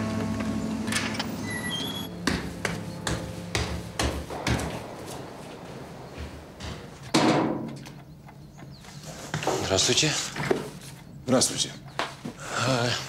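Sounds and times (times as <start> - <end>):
footsteps climbing stairs: 0.0 - 10.9.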